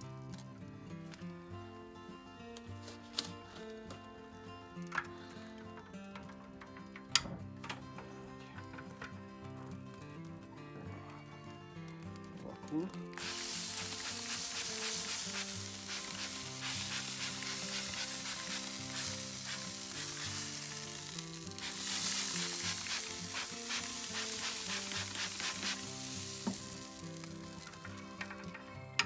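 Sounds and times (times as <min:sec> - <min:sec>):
meat sizzling on grill: 0:11.4 - 0:29.0
spray bottle spritzing: 0:13.1 - 0:28.5.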